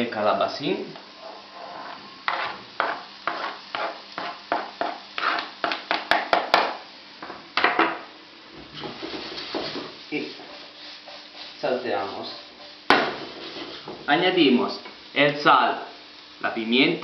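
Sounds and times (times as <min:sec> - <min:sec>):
utensil scraping a cutting board: 0:01.2 - 0:04.4.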